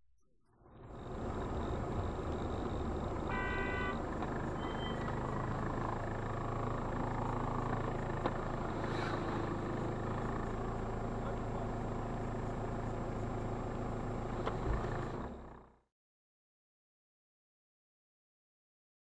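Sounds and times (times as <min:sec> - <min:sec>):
car engine and road noise: 0:00.5 - 0:15.9
car horn toot: 0:03.2 - 0:05.2.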